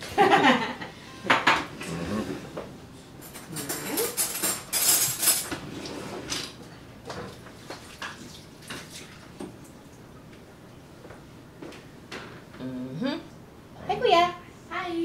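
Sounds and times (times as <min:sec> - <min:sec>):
dishes and utensils clinking: 0:01.2 - 0:06.5.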